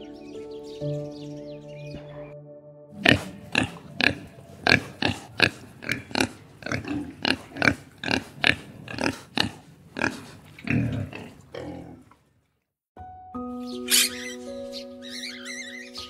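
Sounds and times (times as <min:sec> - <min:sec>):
pigs squealing and grunting: 0:03.0 - 0:12.1.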